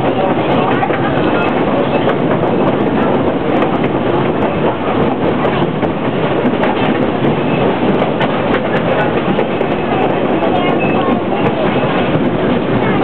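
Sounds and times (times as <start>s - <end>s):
rail clicks: 0.0s - 13.0s
train wheels rumbling on rails: 0.0s - 13.0s.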